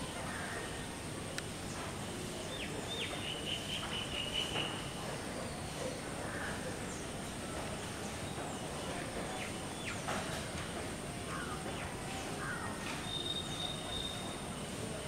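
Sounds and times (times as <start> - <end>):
outdoor background noise: 0.0 - 15.0
faint bird chirps: 12.1 - 14.8
thin high whistle: 13.0 - 14.4.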